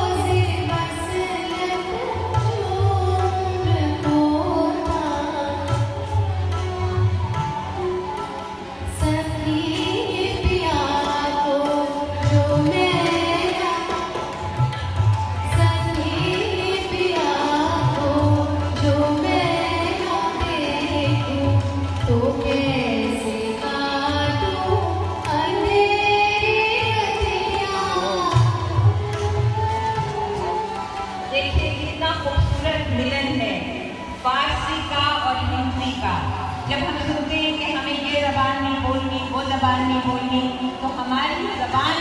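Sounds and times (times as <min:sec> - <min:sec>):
woman singing: 0:00.0 - 0:08.2, 0:08.8 - 0:33.6.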